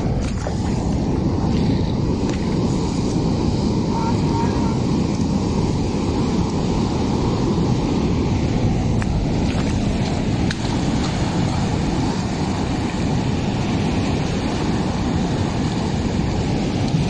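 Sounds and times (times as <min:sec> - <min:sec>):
wind rumbling on microphone: 0:00.0 - 0:17.0
surf breaking on reef: 0:05.9 - 0:17.0.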